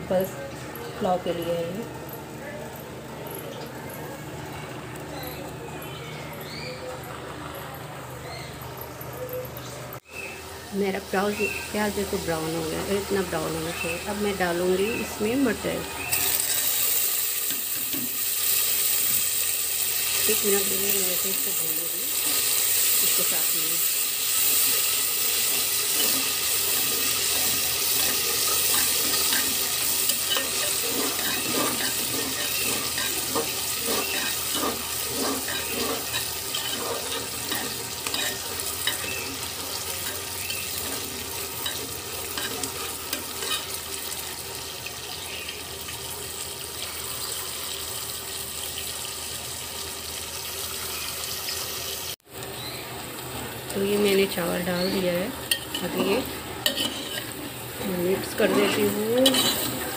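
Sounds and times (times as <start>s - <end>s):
vegetables sizzling in a pot: 10.0s - 59.9s
metal spoon scraping a pot: 16.1s - 19.2s, 20.0s - 43.8s, 54.8s - 57.6s, 58.2s - 59.9s.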